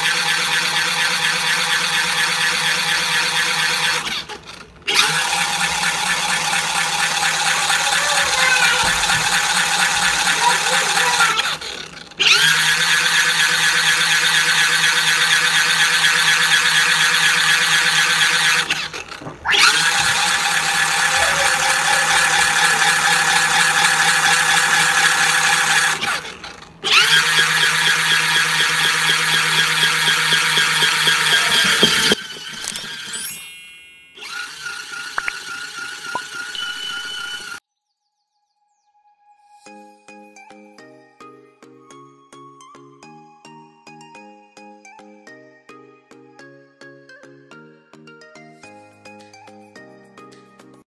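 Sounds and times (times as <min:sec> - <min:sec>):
washing machine motor whining: 0:00.0 - 0:33.6, 0:34.2 - 0:37.6.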